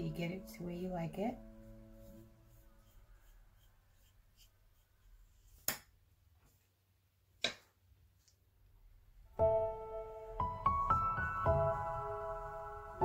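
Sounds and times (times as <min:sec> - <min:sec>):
soft piano music: 0:00.0 - 0:03.3, 0:09.3 - 0:13.0.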